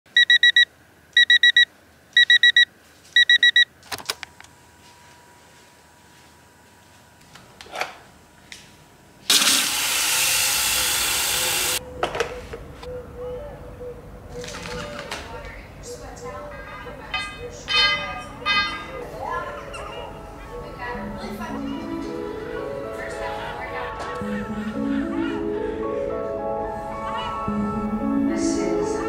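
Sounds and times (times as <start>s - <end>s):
electronic alarm beeping: 0.1s - 3.7s.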